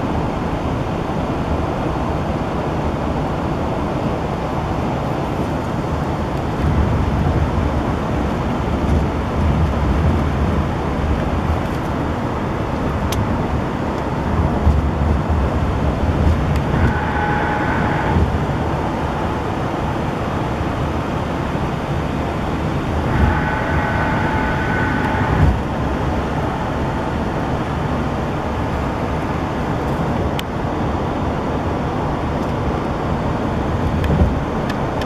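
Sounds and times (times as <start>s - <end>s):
tyre and wind rumble: 0.0s - 35.0s
faint higher hum: 16.5s - 29.2s.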